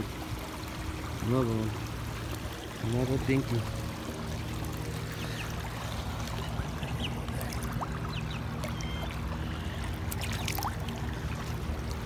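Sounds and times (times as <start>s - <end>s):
lapping water: 0.0s - 12.0s
fish splash: 4.7s - 12.0s.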